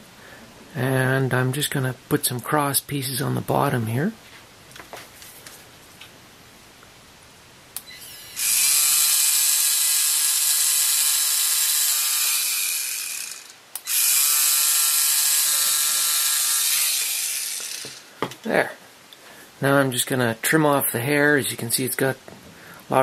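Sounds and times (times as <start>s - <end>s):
motor whirring: 7.8s - 18.0s.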